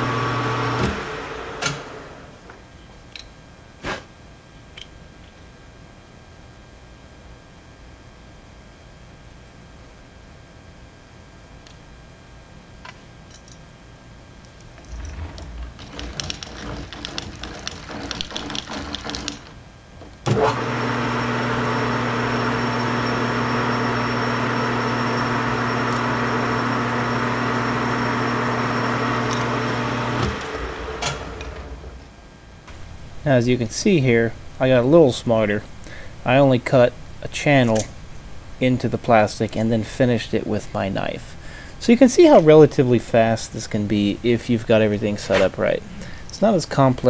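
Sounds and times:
lathe motor hum with whine: 0:00.0 - 0:02.5, 0:20.3 - 0:32.0
clicks and rattles in chuck: 0:14.4 - 0:20.2.

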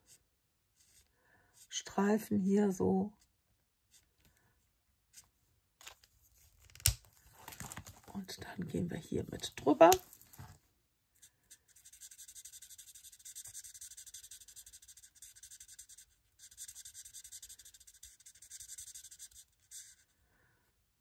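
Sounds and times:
marker scratching on cardstock: 0:00.8 - 0:01.7, 0:11.4 - 0:20.1.

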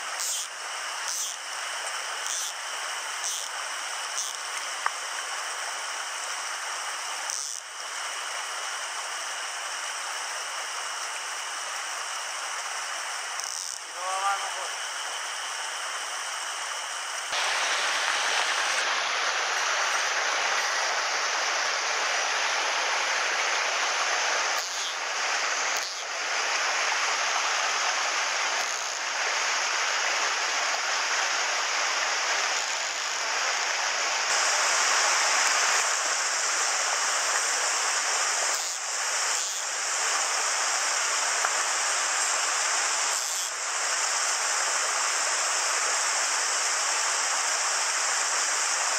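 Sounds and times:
stream rushing over boulders: 0:17.3 - 0:48.9.

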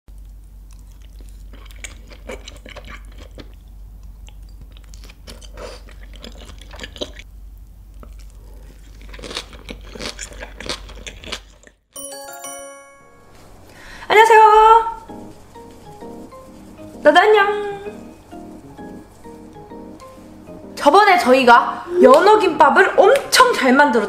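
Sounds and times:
wet chewing: 0:00.1 - 0:11.8.

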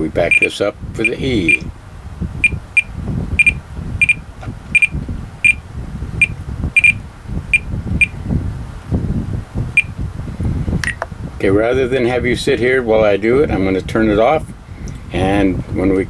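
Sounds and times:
scroll wheel clicking: 0:00.3 - 0:01.6, 0:02.4 - 0:04.2, 0:04.8 - 0:05.6
short high beeps: 0:00.3 - 0:01.6, 0:02.4 - 0:04.2, 0:04.8 - 0:05.6, 0:06.2 - 0:08.2.

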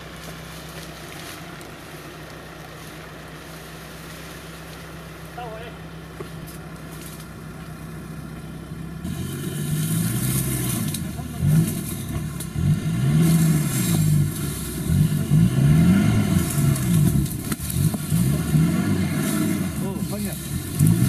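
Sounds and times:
engine revving: 0:08.8 - 0:21.0.

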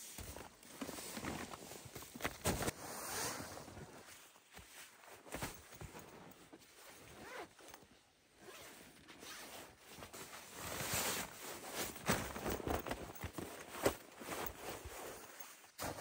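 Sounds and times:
nylon rustling: 0:00.0 - 0:16.0
zipper rasping open: 0:07.0 - 0:07.8, 0:08.4 - 0:09.8.

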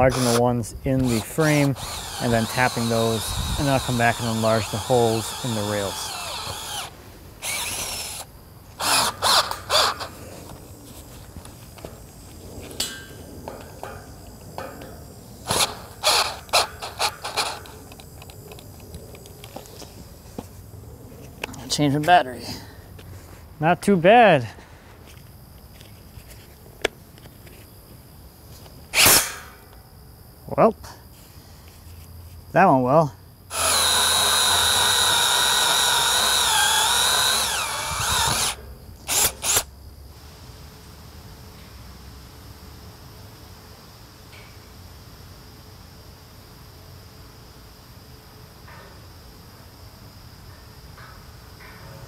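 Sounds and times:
cordless drill drilling steel: 0:00.0 - 0:00.4, 0:01.0 - 0:10.1, 0:15.4 - 0:17.7, 0:33.5 - 0:39.7.

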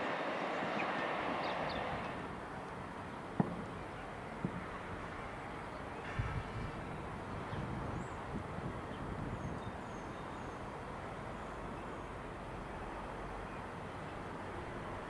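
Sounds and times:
train passing: 0:00.0 - 0:02.6.

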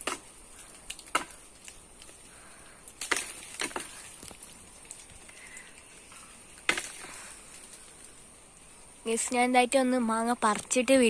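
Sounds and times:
pole knocking against tree branches: 0:00.0 - 0:00.3, 0:00.9 - 0:02.2, 0:03.0 - 0:05.0, 0:06.6 - 0:07.3.

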